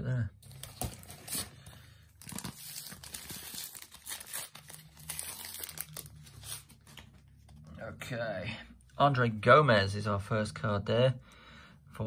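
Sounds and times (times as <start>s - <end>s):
wrapper tearing and crinkling: 0.4s - 7.2s.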